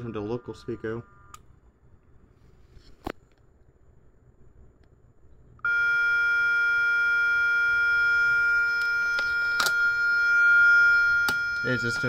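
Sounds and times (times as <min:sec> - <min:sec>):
steady electronic horn tone: 0:00.0 - 0:01.4, 0:05.6 - 0:12.0.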